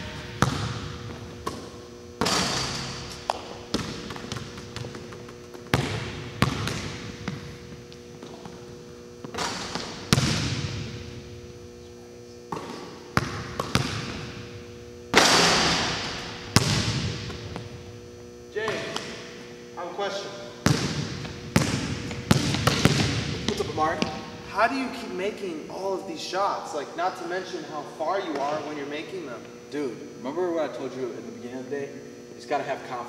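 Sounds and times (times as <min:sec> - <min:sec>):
basketball bouncing on court: 0:00.0 - 0:11.3, 0:12.5 - 0:14.5, 0:15.1 - 0:17.9, 0:20.6 - 0:24.2
steady electrical hum: 0:00.0 - 0:33.0.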